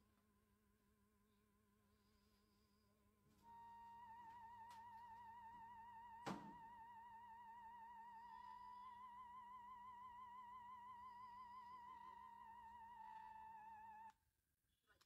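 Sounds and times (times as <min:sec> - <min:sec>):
high wavering tone: 0:03.5 - 0:14.1.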